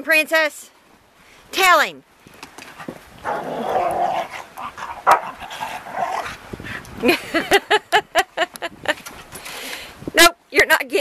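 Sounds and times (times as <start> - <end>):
dog growling: 3.2 - 6.4
dog yapping barks: 5.0 - 5.4.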